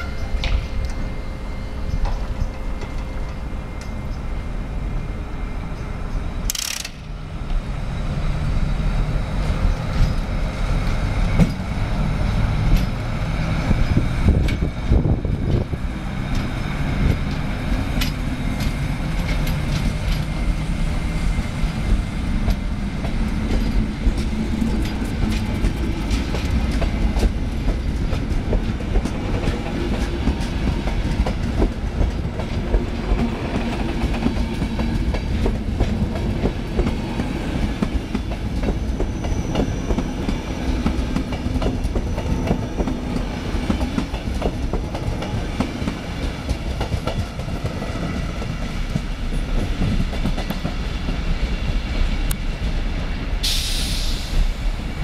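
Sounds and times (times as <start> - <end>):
train rumbling past: 0.0 - 55.0
wheels clicking over rail joints: 6.4 - 7.6, 16.3 - 20.6
sharp hiss: 53.4 - 54.8.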